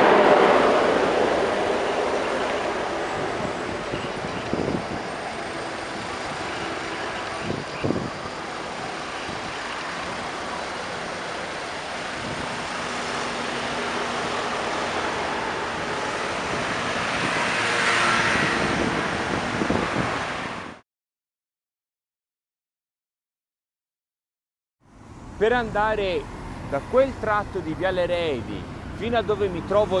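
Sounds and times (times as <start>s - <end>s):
engines idling in traffic: 0.9s - 17.4s, 24.8s - 30.0s.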